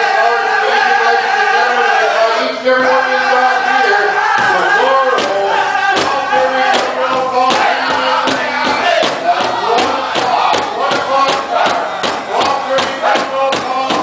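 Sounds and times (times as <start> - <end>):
men singing together: 2.8 - 14.0
large drum beating: 4.4 - 14.0.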